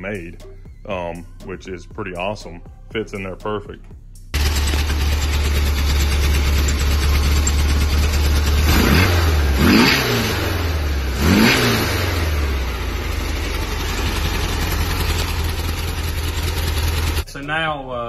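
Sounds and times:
car engine idling and revving: 4.3s - 17.3s.

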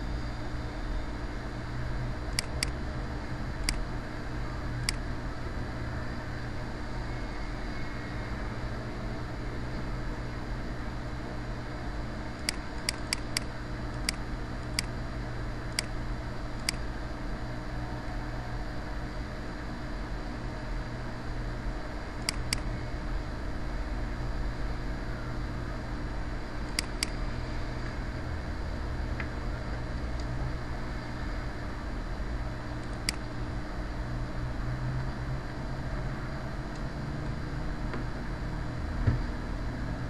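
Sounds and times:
computer fan hiss and hum: 0.0s - 40.0s
computer mouse clicking: 2.3s - 2.8s, 3.6s - 3.8s, 12.4s - 15.0s, 16.6s - 16.8s, 22.2s - 22.7s, 26.7s - 27.2s, 32.8s - 33.2s.

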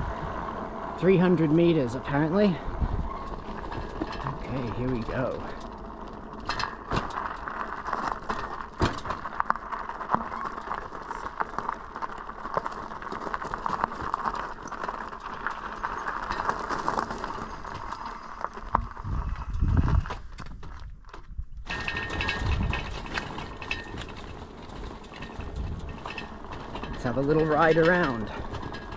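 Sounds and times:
low rumble: 0.0s - 11.5s
bicycle tyres crunching on gravel: 0.0s - 28.9s
bicycle clicks and rattles: 0.4s - 28.9s.

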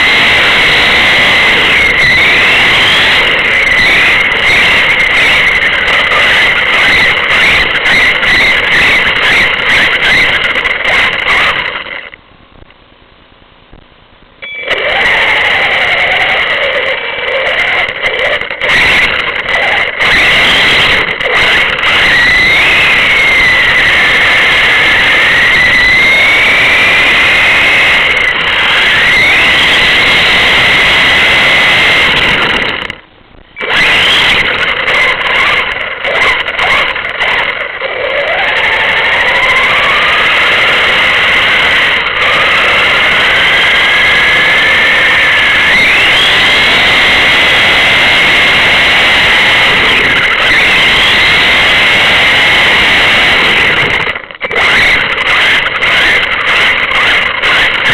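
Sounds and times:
vehicle engine at road speed: 0.0s - 12.2s, 14.7s - 57.9s
drivetrain whine: 0.0s - 57.9s.

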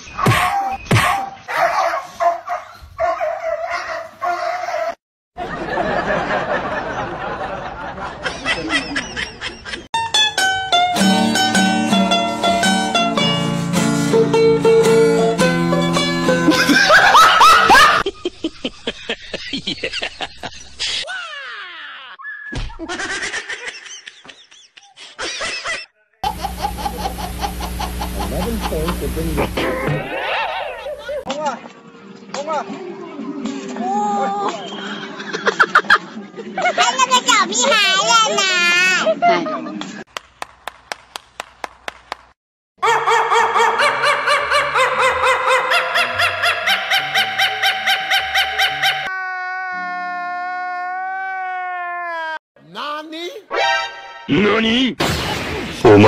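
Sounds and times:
rhythmic snickering laugh: 5.5s - 9.9s, 16.4s - 21.0s, 22.8s - 31.3s, 34.4s - 37.1s, 39.0s - 40.0s, 43.8s - 49.1s
baby laughing: 22.9s - 28.9s, 29.6s - 31.3s
hands clapping: 39.8s - 42.4s.

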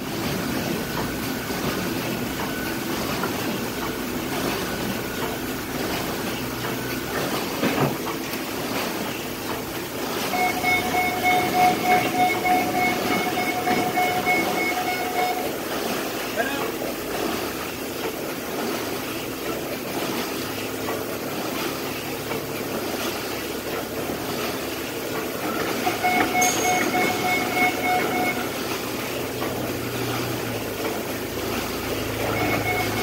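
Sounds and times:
machine mechanical din: 10.2s - 15.9s, 25.6s - 28.6s, 30.9s - 33.0s
steady high tone: 10.3s - 15.8s, 25.8s - 28.6s, 32.2s - 33.0s.

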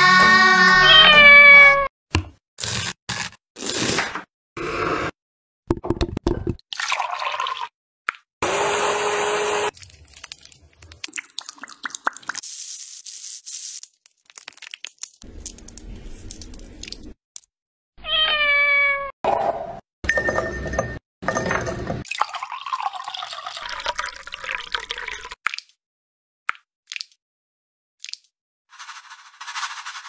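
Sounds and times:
cat meowing: 0.7s - 1.9s, 18.0s - 19.1s
milk pouring into a glass: 6.7s - 7.7s, 9.8s - 12.1s, 22.1s - 25.4s
hand blender running: 8.4s - 9.7s.

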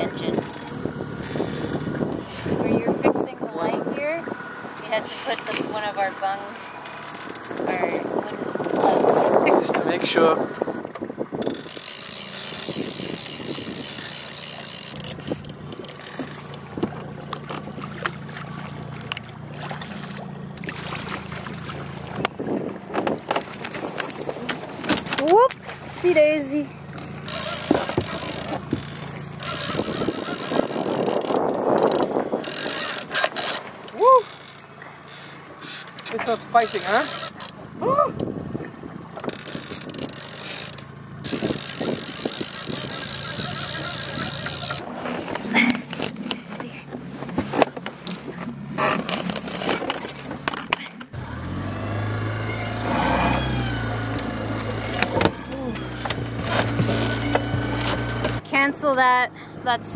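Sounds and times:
outboard motor humming: 0.0s - 59.9s
rush of wind and water: 0.0s - 59.9s
fishing reel clicks: 11.4s - 16.6s, 27.3s - 37.6s, 39.2s - 44.8s
gear knocking and clattering: 27.2s - 37.6s, 39.2s - 51.1s, 54.8s - 58.4s.

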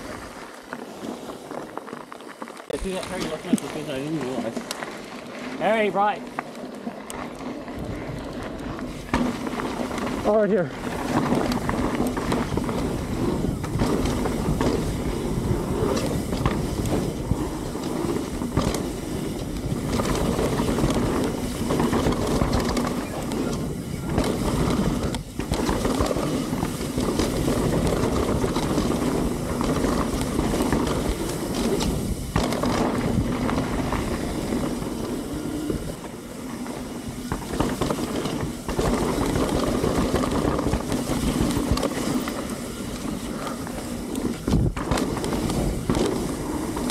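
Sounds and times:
bike rattling and knocking: 0.0s - 46.9s
tyres rolling over dirt: 0.0s - 46.9s
wind buffeting microphone: 7.6s - 46.9s.

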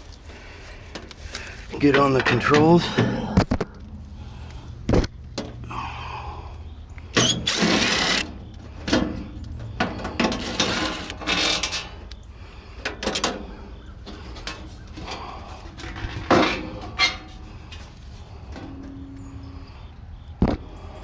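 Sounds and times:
metal scraping and rattling: 7.2s - 12.0s, 14.1s - 19.1s.

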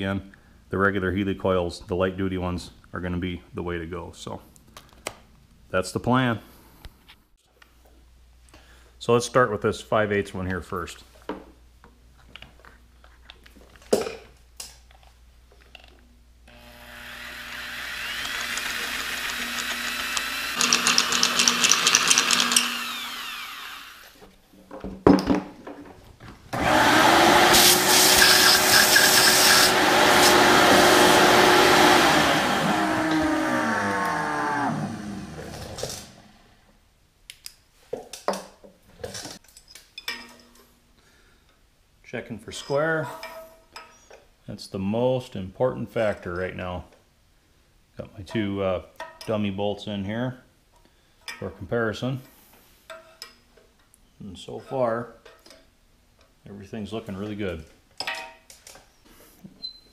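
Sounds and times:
electric drill boring metal: 16.5s - 24.2s, 26.6s - 36.3s.

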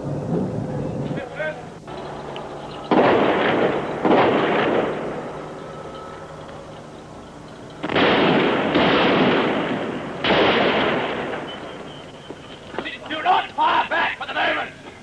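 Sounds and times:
loud gunshots with echo: 2.9s - 5.4s, 7.8s - 11.9s.

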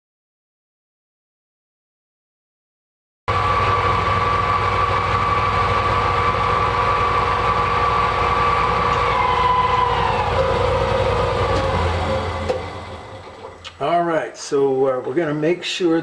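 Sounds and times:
metal lathe running: 3.3s - 13.8s.

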